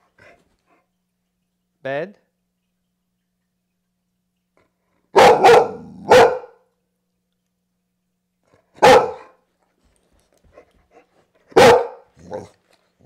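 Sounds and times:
dog barking: 0:05.1 - 0:06.7, 0:08.8 - 0:09.4, 0:11.5 - 0:12.5.

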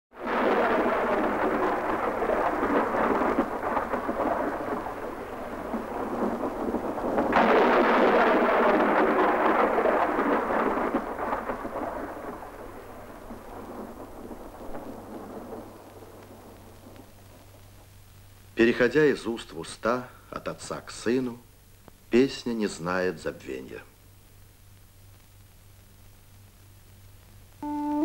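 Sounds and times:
heavy rain pouring: 0:00.1 - 0:18.6, 0:27.6 - 0:28.0.

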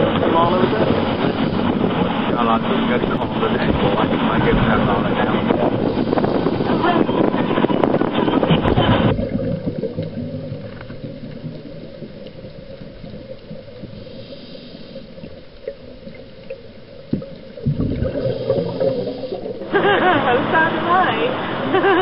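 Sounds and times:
wind noise on microphone: 0:00.0 - 0:10.9
water lapping and gurgling: 0:00.0 - 0:22.0.

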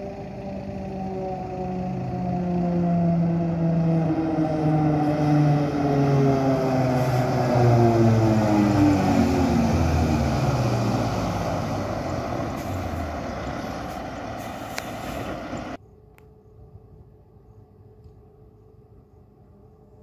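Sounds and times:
fire truck engine passing: 0:00.0 - 0:15.8.

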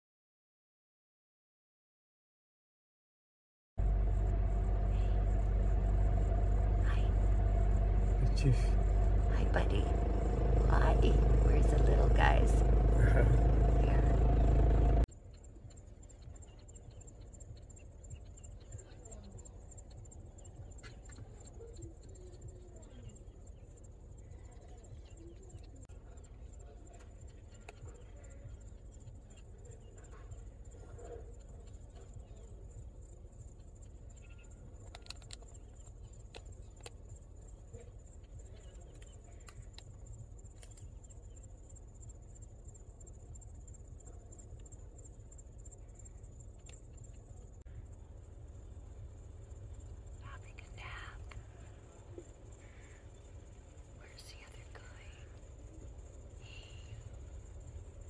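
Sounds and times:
high-pitched insect drone: 0:03.8 - 0:15.0, 0:52.2 - 0:58.0
low rumble: 0:03.8 - 0:15.1
insects trilling: 0:04.1 - 0:58.0
faint clicks: 0:15.1 - 0:47.5, 0:49.8 - 0:58.0
scattered ticks: 0:15.1 - 0:58.0
faint wavering calls: 0:49.6 - 0:58.0.

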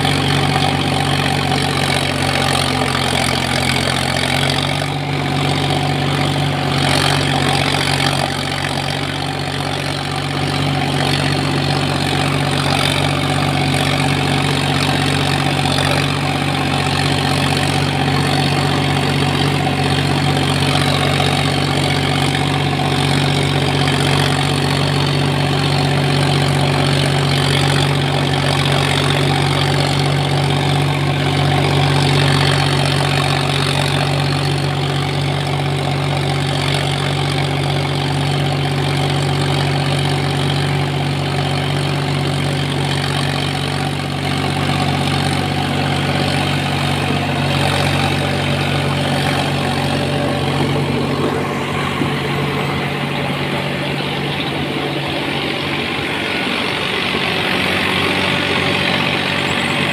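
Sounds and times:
tractor diesel engine under load: 0:00.0 - 0:59.9
rotavator churning soil: 0:43.2 - 0:59.9.

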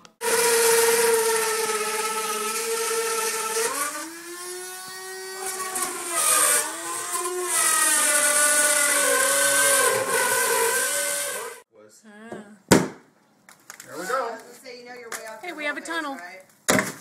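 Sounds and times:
electric drill motor whining: 0:00.2 - 0:11.6.

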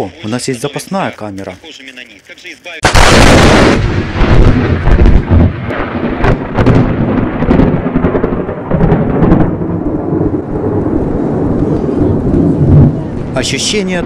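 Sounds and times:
thunder rumbling and cracking: 0:02.8 - 0:14.0.

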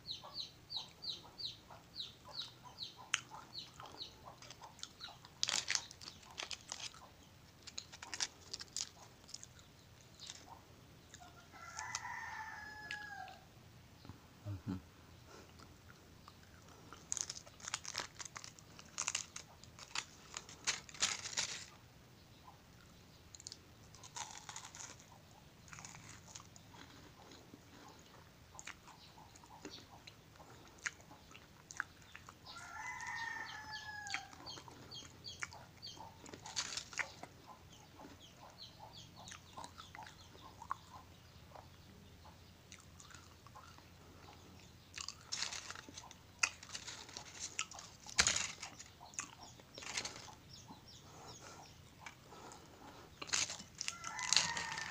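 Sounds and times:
chocolates crunching: 0:03.2 - 0:13.1, 0:16.2 - 0:21.8, 0:23.3 - 0:27.9, 0:36.2 - 0:37.3, 0:42.8 - 0:54.9
foil wrappers crinkling: 0:05.3 - 0:06.9, 0:07.6 - 0:09.1, 0:17.0 - 0:21.8, 0:36.4 - 0:37.0, 0:45.2 - 0:48.9, 0:49.8 - 0:50.4, 0:53.2 - 0:54.9
rooster crowing: 0:11.3 - 0:13.5, 0:32.5 - 0:34.4, 0:53.8 - 0:54.9.

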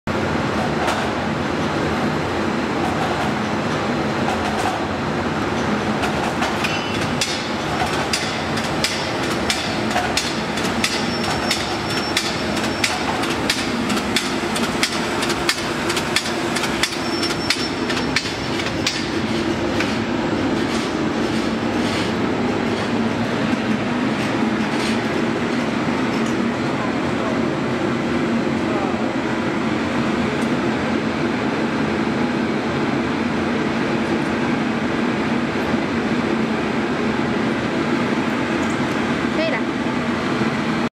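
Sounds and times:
machine humming: 0:04.9 - 0:23.4
rapid mechanical clicking: 0:07.2 - 0:19.1.

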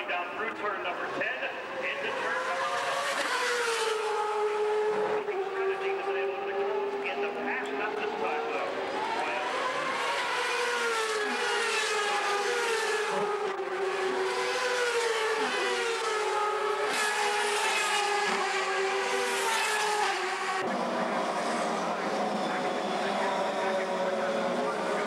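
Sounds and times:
race car engines revving past: 0:00.0 - 0:25.0.

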